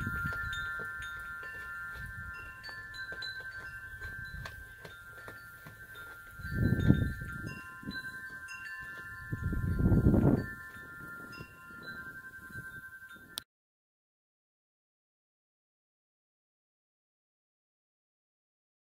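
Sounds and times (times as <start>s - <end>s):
wind buffeting microphone: 0.0s - 13.4s
wind chimes ringing: 0.0s - 13.4s.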